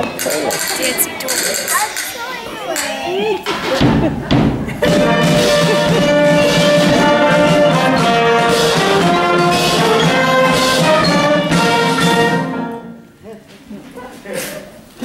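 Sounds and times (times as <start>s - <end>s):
brass instruments playing dance music: 4.8s - 13.1s.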